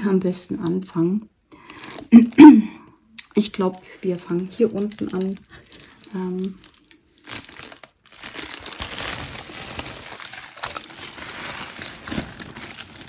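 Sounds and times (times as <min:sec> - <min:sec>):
plastic bags crinkling: 0:03.3 - 0:13.0.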